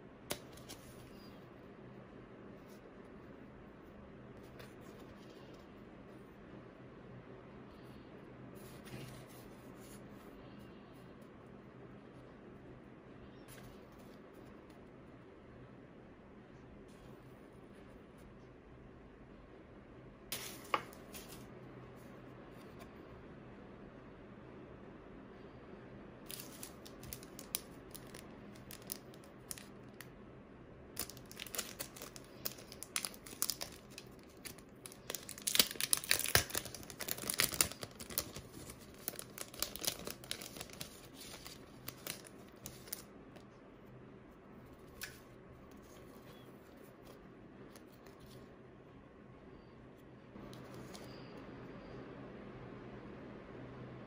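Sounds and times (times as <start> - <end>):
plastic packaging crinkling: 26.3 - 30.1, 31.0 - 43.1.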